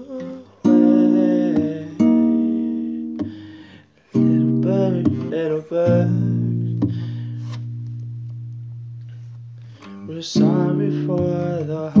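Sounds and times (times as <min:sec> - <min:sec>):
man singing wordless notes: 0:00.0 - 0:03.4, 0:04.1 - 0:07.2, 0:10.0 - 0:12.0
acoustic guitar strumming: 0:00.0 - 0:12.0.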